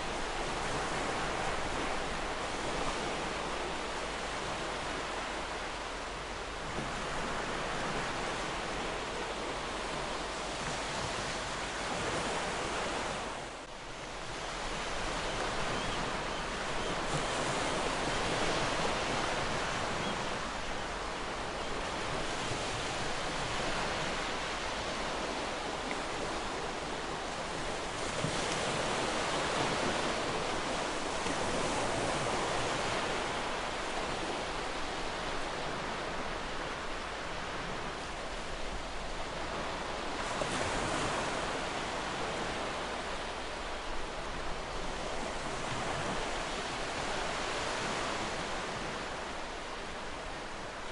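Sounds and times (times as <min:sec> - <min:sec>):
ocean waves washing ashore: 0:00.0 - 0:50.9.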